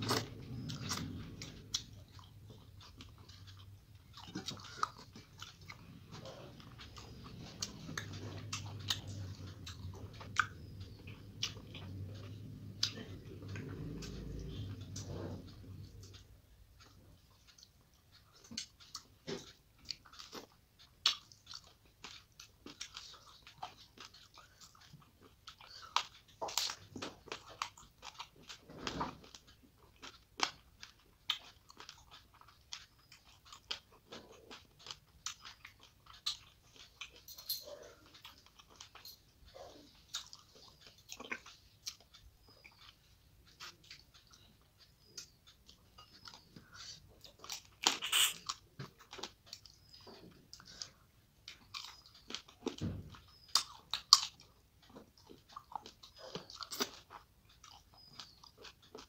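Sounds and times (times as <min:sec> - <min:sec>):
close-miked eating and chewing: 0:00.0 - 0:59.0
crunching: 0:00.0 - 0:59.0
wet mouth clicks and smacks: 0:07.4 - 0:15.1, 0:45.1 - 0:50.0.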